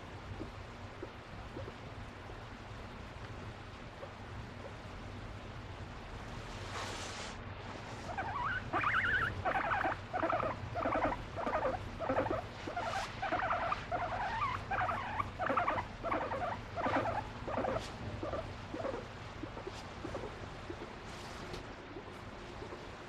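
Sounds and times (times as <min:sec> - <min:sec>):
guinea pig squeaky calls: 0:08.1 - 0:20.9.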